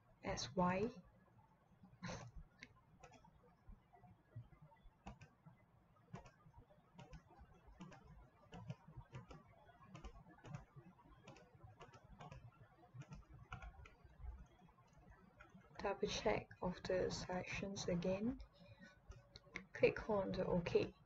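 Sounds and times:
computer mouse clicks: 2.0 - 3.3, 5.0 - 5.4, 6.1 - 6.4, 7.0 - 15.6.

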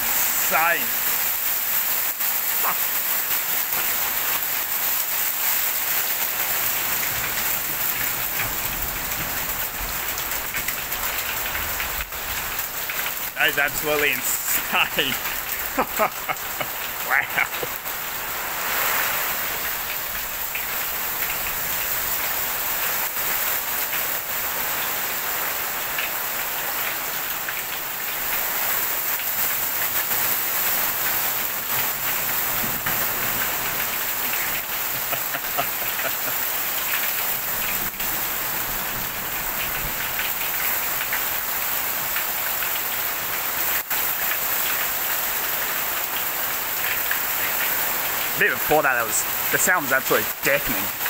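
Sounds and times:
hail pelting a roof: 0.0 - 51.0.

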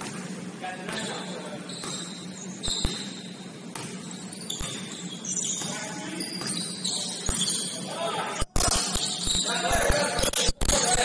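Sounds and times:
sneakers squeaking on gym floor: 0.0 - 8.0, 8.6 - 11.0.

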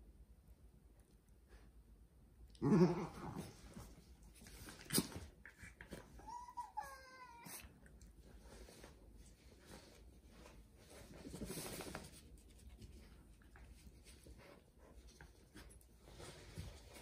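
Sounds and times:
dog growling: 2.6 - 3.6
dog whining: 5.6 - 7.8.

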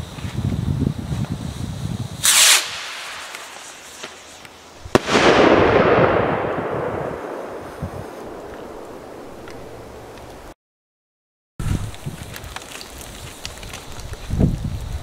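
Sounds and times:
firework rocket launch hiss: 1.3 - 9.6
fizzing spray of sparks: 1.4 - 5.4
firework bang: 2.2 - 10.2.

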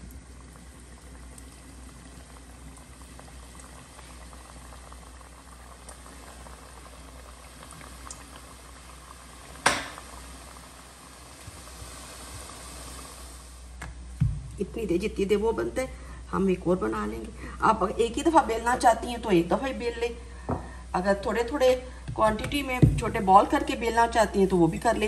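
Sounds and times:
dough sizzling in hot oil: 0.0 - 13.7.

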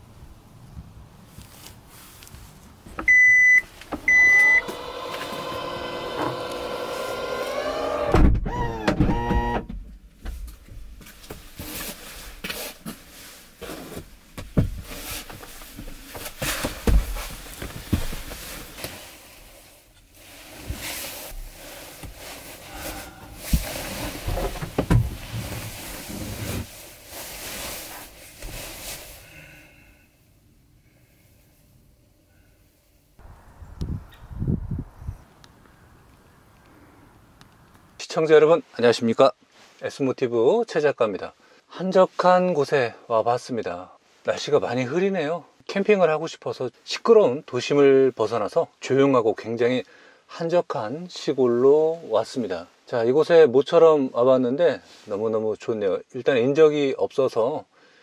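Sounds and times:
rustling: 1.2 - 3.0, 10.3 - 30.0
warning beeps: 3.1 - 4.7
tailgate motor whine: 4.1 - 9.7.

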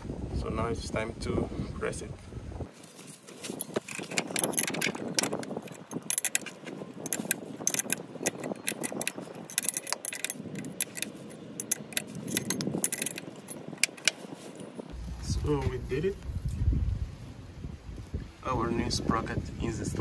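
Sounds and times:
spanners clicking on metal: 3.6 - 14.7.

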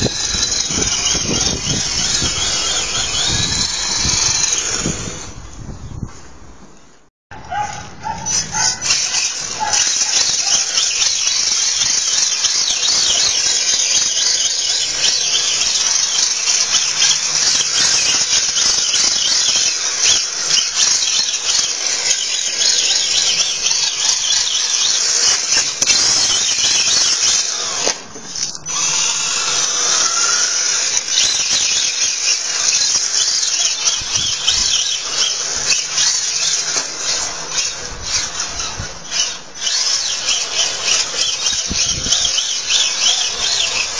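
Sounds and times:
electric motor whining: 0.0 - 5.7, 8.0 - 43.9.

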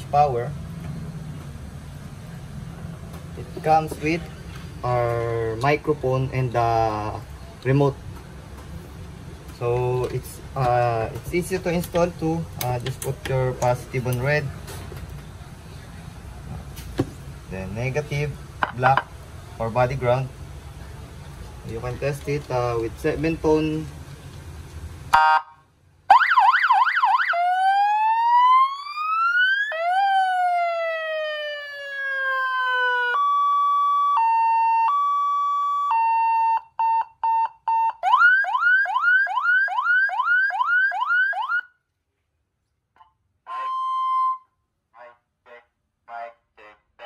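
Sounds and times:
electronic siren: 25.1 - 41.8, 43.0 - 44.5
voice through speaker: 45.0 - 47.0.

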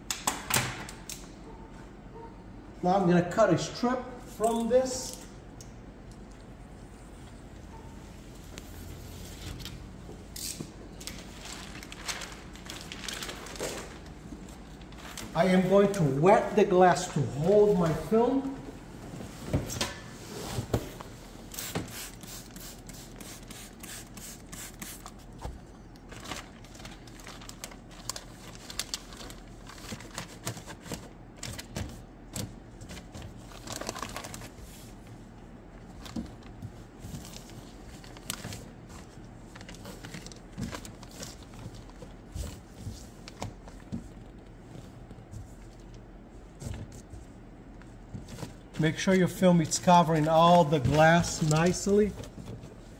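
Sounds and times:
plastic film crinkling: 10.9 - 16.1, 26.0 - 30.8, 33.3 - 34.6.

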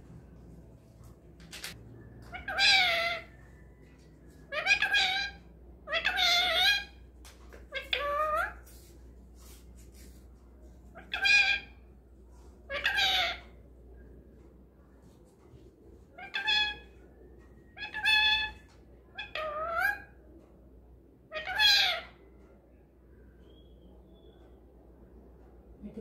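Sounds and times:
parakeet calling: 2.3 - 3.4, 4.5 - 7.0, 7.7 - 8.6, 10.9 - 11.8, 12.7 - 13.6, 16.1 - 17.0, 17.7 - 18.6, 19.2 - 20.2, 21.3 - 22.2.

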